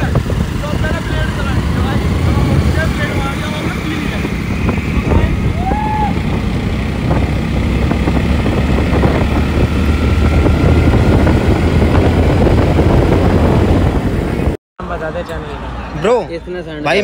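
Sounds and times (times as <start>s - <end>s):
motorcycle engine: 0.0s - 14.6s
wind on microphone: 0.0s - 14.6s.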